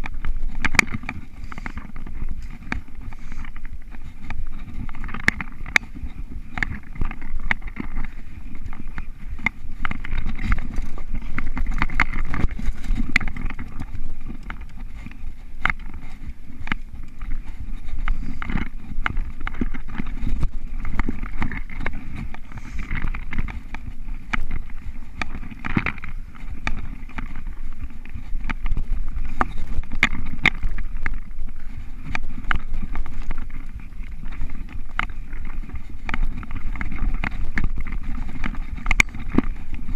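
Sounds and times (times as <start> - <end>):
bike clicking and rattling: 0.0 - 39.9
bike tyres rumbling on dirt: 0.0 - 39.9
wind noise: 0.0 - 39.9.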